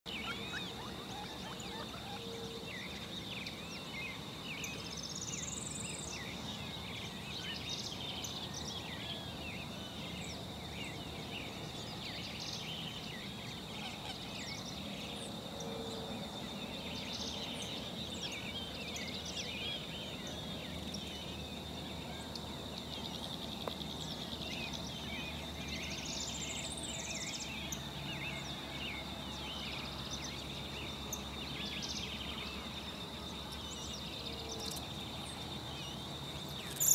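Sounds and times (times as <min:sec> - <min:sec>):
bird trilled calls: 0:00.1 - 0:03.0, 0:36.6 - 0:36.9
birds chirping: 0:00.1 - 0:15.5, 0:16.1 - 0:36.9
steady high-pitched whine: 0:00.1 - 0:36.9.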